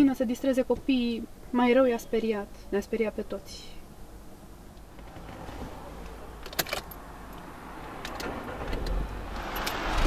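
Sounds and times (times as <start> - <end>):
car engine cranking and starting: 4.9 - 10.0
car keys clicking and jingling: 6.0 - 10.0.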